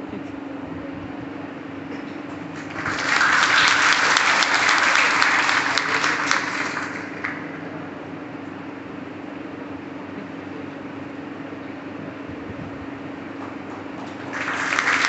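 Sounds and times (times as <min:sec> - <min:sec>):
steady low hum: 0:00.0 - 0:15.0
audience applauding: 0:02.5 - 0:07.9, 0:13.4 - 0:15.0.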